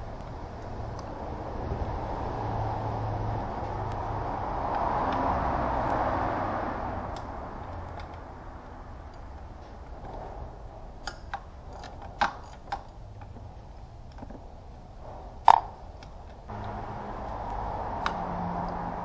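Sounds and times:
steady rushing noise: 0.0 - 9.1, 16.5 - 19.0.

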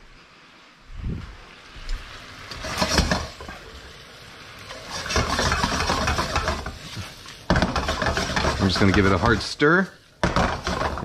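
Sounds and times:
spoon stirring noodles in wok: 4.7 - 9.6, 10.2 - 11.0.

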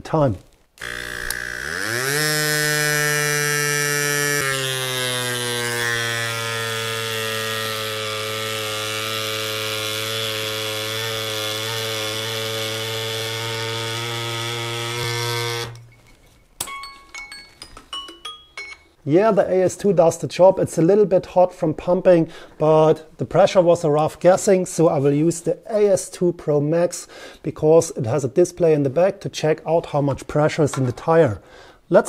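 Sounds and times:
electric pump motor buzzing: 0.8 - 15.8.

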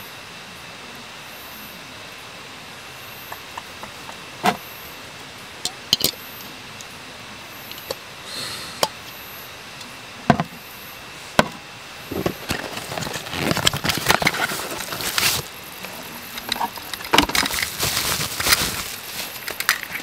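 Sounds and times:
crinkling and rustling: 12.1 - 20.0.

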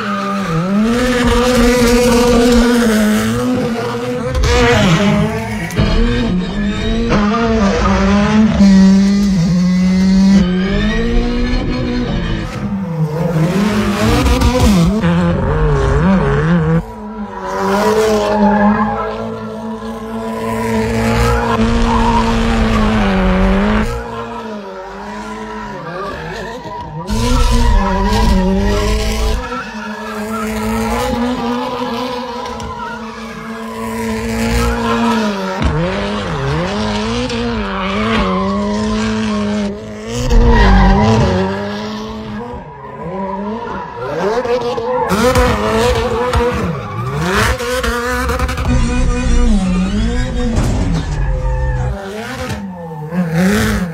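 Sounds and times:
rally car engine revving: 0.0 - 53.9.

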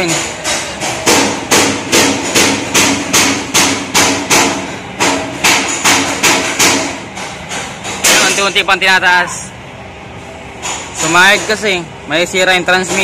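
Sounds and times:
hammer striking metal: 0.0 - 8.8.

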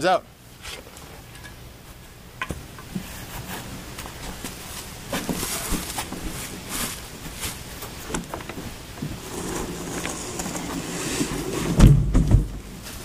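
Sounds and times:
scuffing footsteps: 4.0 - 9.2
plastic tank knocks and thuds: 11.8 - 12.7.

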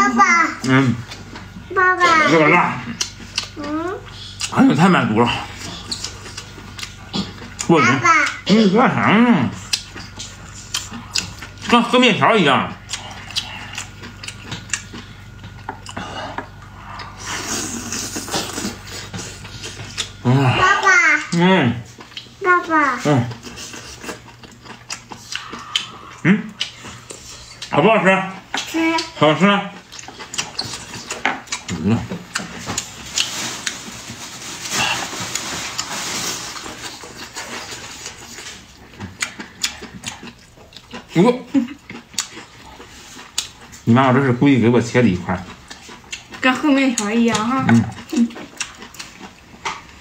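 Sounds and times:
wet chewing and slurping: 0.5 - 8.6, 9.4 - 27.8, 28.4 - 50.0
mouth and chopsticks clicking: 24.4 - 27.8.

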